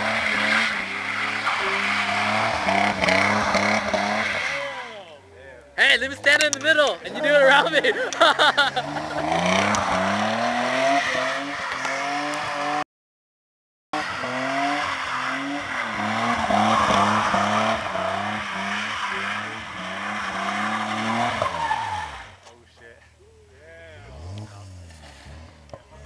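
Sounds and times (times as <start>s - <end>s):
tyres scrubbing on wet road: 0.0s - 5.0s, 14.1s - 22.4s, 24.1s - 25.7s
car engine revving: 0.0s - 5.2s, 5.8s - 12.8s, 14.0s - 22.4s, 24.0s - 26.0s.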